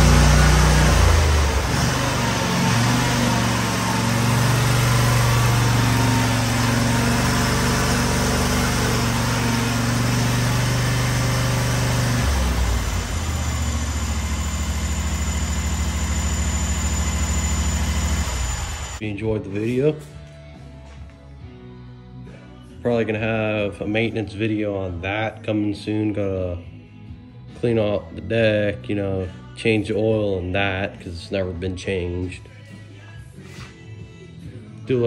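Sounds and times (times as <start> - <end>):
mower engine running: 0.0 - 19.0.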